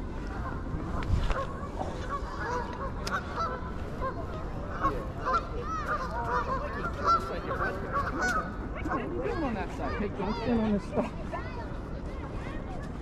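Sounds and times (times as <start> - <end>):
geese honking: 0.3 - 10.0.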